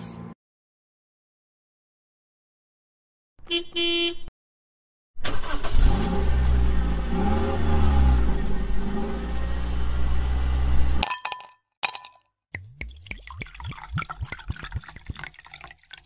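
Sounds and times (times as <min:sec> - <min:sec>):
engine revving: 0:05.2 - 0:11.0.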